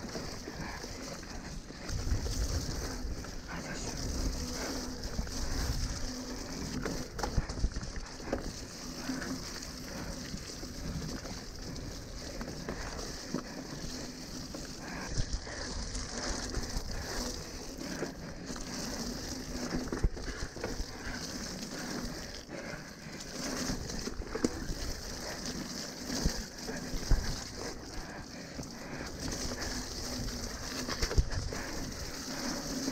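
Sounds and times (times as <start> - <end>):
steady rushing noise: 0.0 - 14.2
bike clattering and rattling: 0.0 - 32.9.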